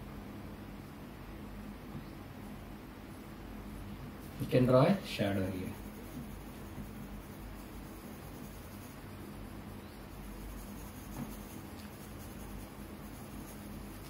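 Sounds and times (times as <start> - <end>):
pencil scratching on paper: 5.2 - 14.0.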